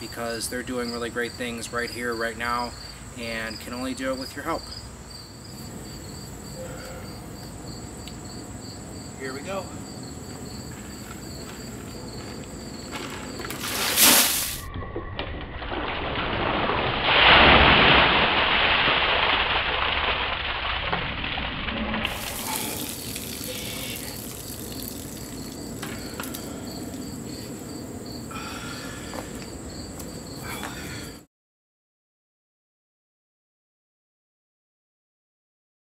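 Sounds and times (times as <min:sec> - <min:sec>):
water pouring and splashing: 0:13.4 - 0:14.7, 0:15.7 - 0:26.9
water trickling and dripping: 0:22.0 - 0:27.2
small ticks: 0:24.7 - 0:27.0.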